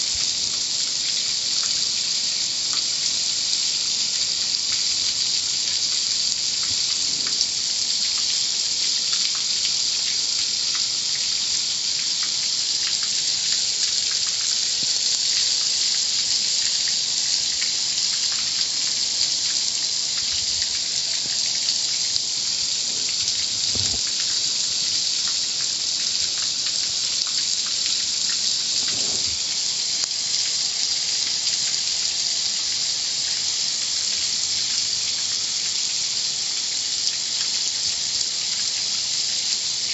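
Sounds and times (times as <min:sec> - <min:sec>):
car wash water jets spraying: 0:16.2 - 0:33.6
faint low thuds: 0:23.6 - 0:24.1.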